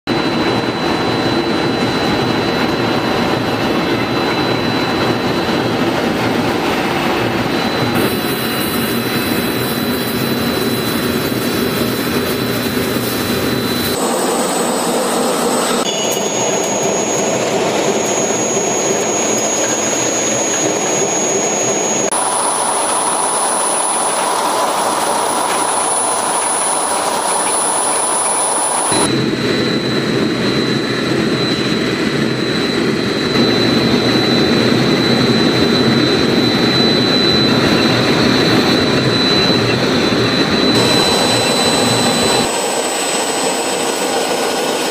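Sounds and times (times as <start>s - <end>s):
wire drawing machine running: 7.9s - 29.1s, 40.4s - 44.9s.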